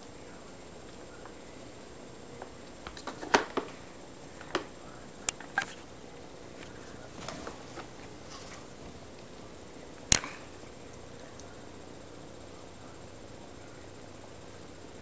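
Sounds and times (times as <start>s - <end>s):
kittens scrabbling: 6.6s - 9.4s.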